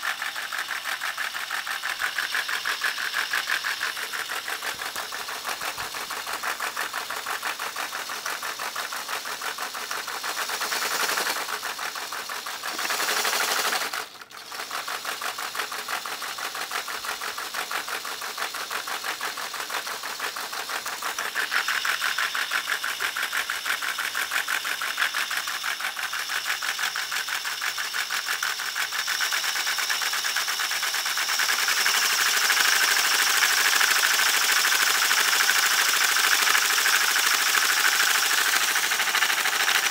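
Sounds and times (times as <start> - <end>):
small electric motor whirring: 0.0 - 39.9
plastic pistons clattering: 0.1 - 39.9.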